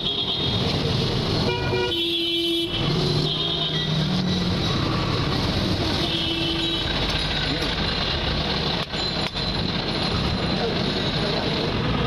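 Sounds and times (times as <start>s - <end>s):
vehicle horns: 0.0s - 0.7s, 1.3s - 4.4s, 5.9s - 7.0s
street traffic noise: 0.0s - 12.0s.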